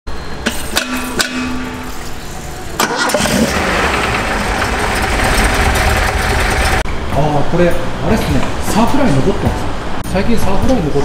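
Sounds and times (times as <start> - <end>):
car engine starting and running: 2.2 - 6.8.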